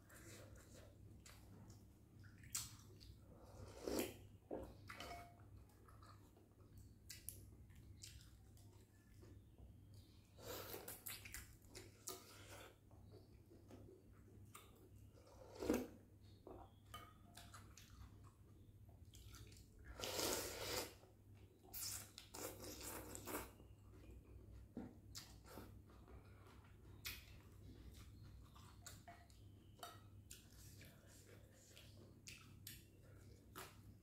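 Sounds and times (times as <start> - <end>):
slurping noodles: 19.9 - 21.1.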